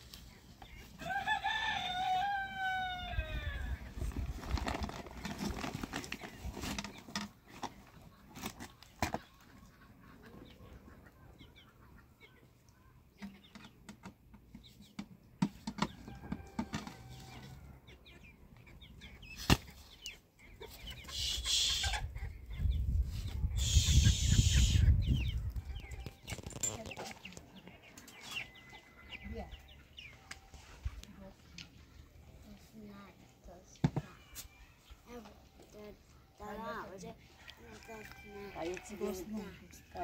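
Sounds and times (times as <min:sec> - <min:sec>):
chickens clucking: 0:00.0 - 0:01.2, 0:03.2 - 0:40.0
rooster crowing: 0:01.0 - 0:03.7.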